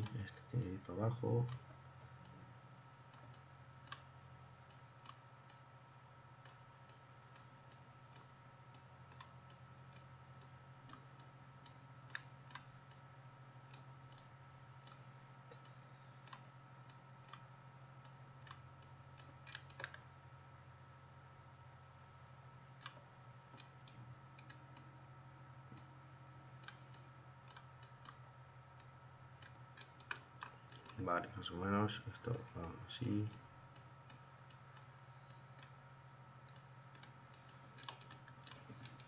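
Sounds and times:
steady low hum: 0.0 - 39.0
computer mouse clicks: 3.1 - 4.1, 4.7 - 5.6, 6.4 - 13.0, 13.7 - 20.1, 22.8 - 24.9, 26.6 - 31.0, 36.4 - 39.0.

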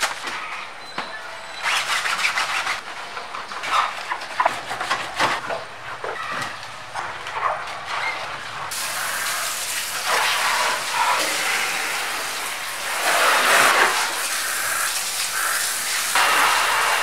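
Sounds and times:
hose water spraying on car: 8.7 - 17.0.

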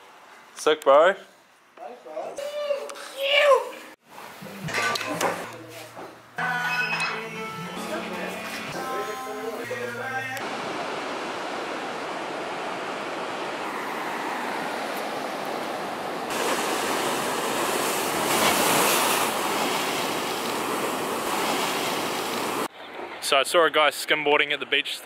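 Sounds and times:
ocean waves breaking on shore: 10.4 - 23.3.

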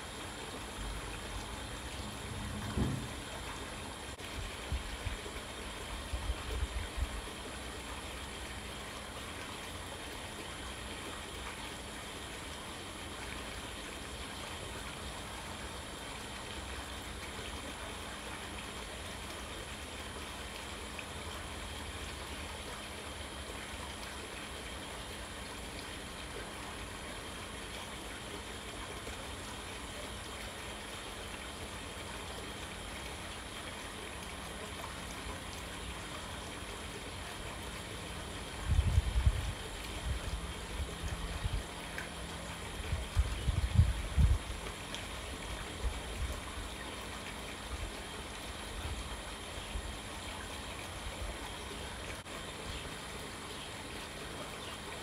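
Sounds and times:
rushing hiss of background noise: 0.0 - 55.0
low bumps: 2.0 - 3.5.

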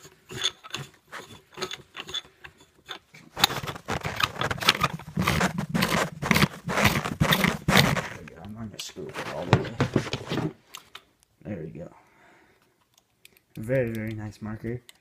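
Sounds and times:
barrel screwing ticks and scraping: 0.0 - 8.6.

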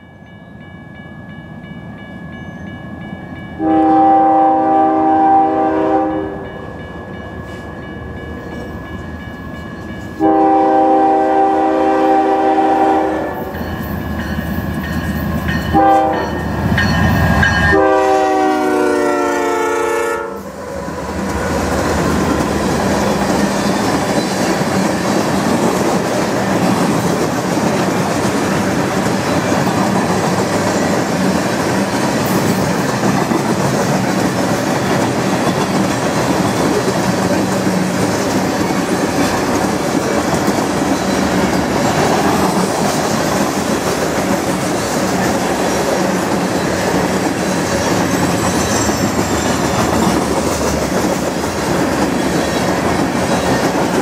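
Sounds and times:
locomotive air horn blasts: 3.6 - 6.5, 10.2 - 13.5, 15.7 - 16.4, 17.7 - 20.5
train cars rumbling and clattering: 4.5 - 54.0.

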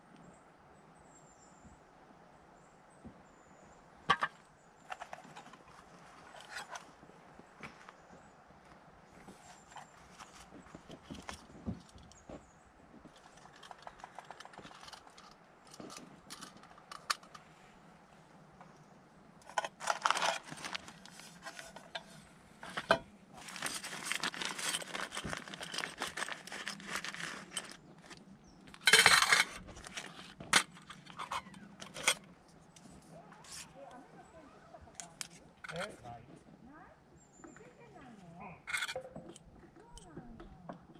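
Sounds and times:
rustling and crinkling handling: 4.1 - 18.8, 19.4 - 40.9
small clicks and knocks: 13.0 - 17.5.

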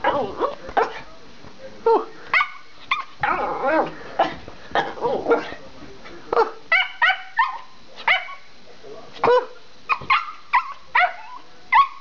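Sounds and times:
dog barking excitedly: 6.4 - 8.4, 9.2 - 12.0.

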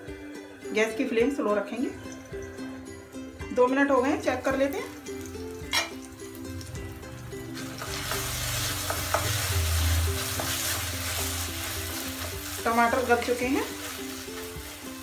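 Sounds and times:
tomatoes sizzling in oil: 4.0 - 15.0
wooden spatula scraping a pan: 8.0 - 14.8.

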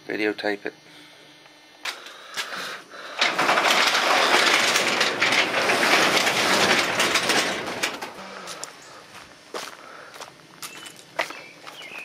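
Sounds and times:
garage door rattling: 2.4 - 9.0
garage door clicks: 3.1 - 8.3.

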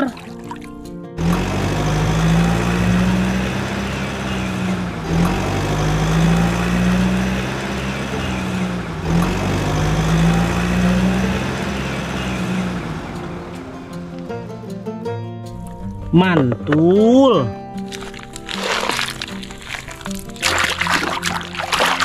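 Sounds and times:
heavy vehicle engine hum: 1.2 - 15.1.

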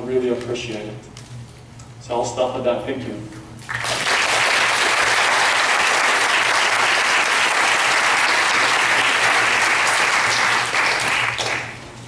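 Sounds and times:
audience applauding: 3.7 - 11.8.

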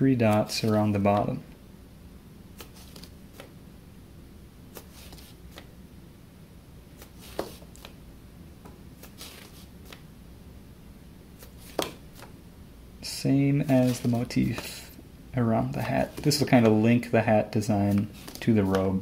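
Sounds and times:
low steady hum: 0.0 - 19.0.

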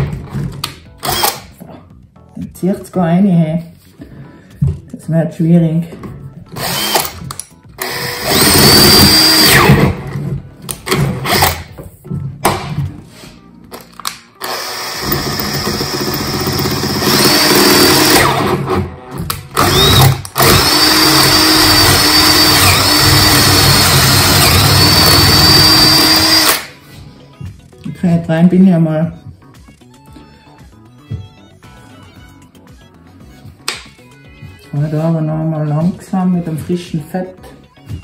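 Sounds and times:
electric drill boring metal: 1.0 - 1.4, 6.6 - 10.0, 11.2 - 11.7, 14.4 - 18.9, 19.5 - 26.7.

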